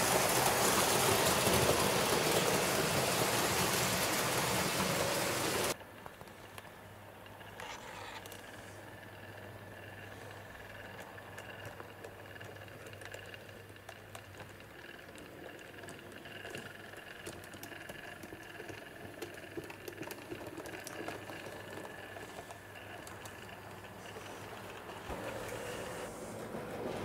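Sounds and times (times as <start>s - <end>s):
wheels clicking on rails: 0.0s - 27.0s.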